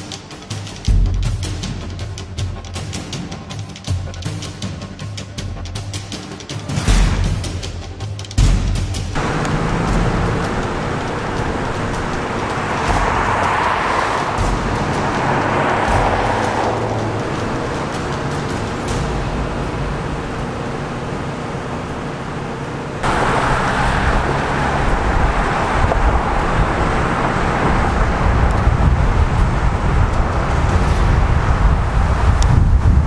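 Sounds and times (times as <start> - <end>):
road traffic rushing hum: 9.1 - 33.0
heavy low rumble: 9.2 - 33.0.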